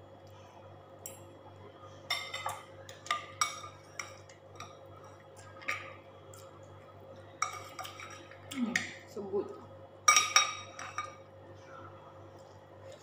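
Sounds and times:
cutlery clinking on ceramic bowls: 2.1s - 6.0s, 7.4s - 9.0s, 10.1s - 11.3s.

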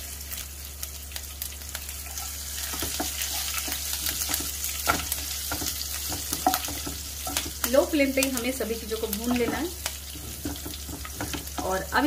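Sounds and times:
spices sizzling in hot oil: 0.0s - 12.0s
spoon knocking against pan: 4.2s - 7.7s, 9.3s - 11.8s.

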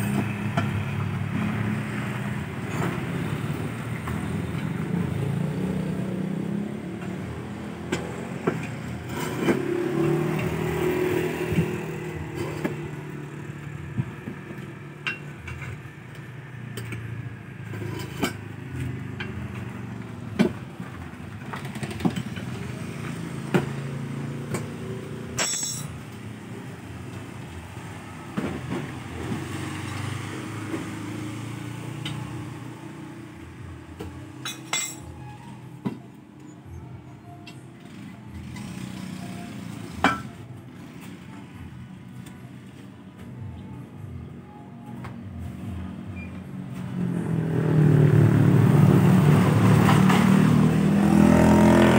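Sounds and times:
metal hand tools clinking: 25.4s - 25.9s
scooters riding past: 47.0s - 51.9s.

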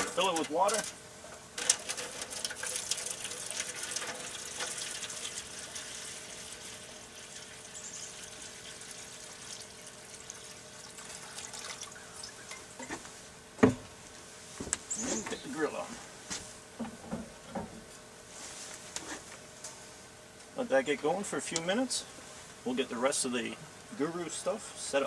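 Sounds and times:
water pouring into foil pan: 1.6s - 12.5s.

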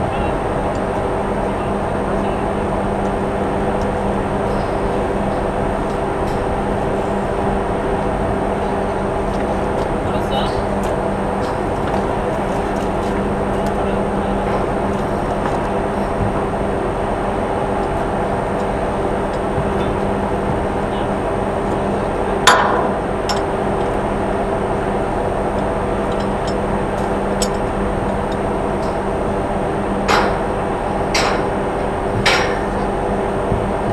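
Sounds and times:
ship machinery droning: 0.0s - 33.9s
sharp metallic clank: 22.4s - 23.5s, 30.1s - 30.5s, 31.1s - 31.5s, 32.2s - 32.9s.

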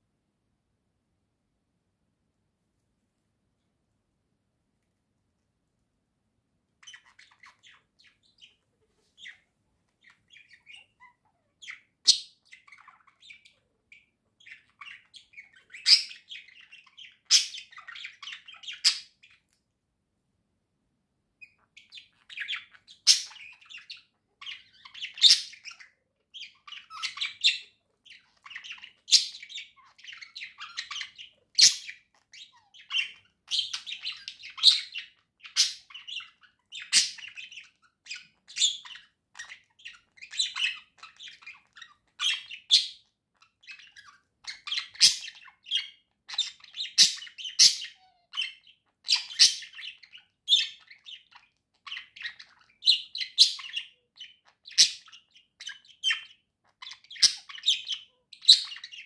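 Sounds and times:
budgerigar chirping and squeaking: 6.8s - 19.5s, 21.4s - 59.0s.

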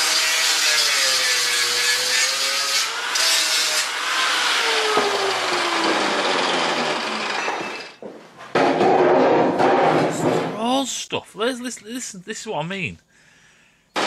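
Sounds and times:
angle grinder grinding steel: 0.0s - 8.0s.

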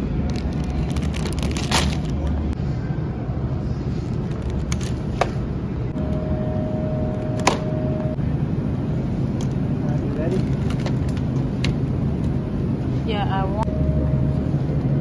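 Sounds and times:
plastic-wrapped groceries handled: 0.2s - 2.5s
steady beep-like tone: 5.9s - 8.2s, 13.6s - 15.0s.

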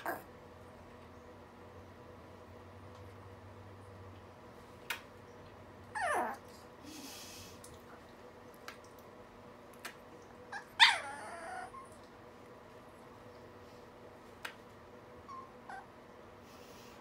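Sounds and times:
small dog whining: 0.0s - 0.3s, 5.9s - 6.6s, 10.5s - 12.0s, 15.2s - 16.0s.

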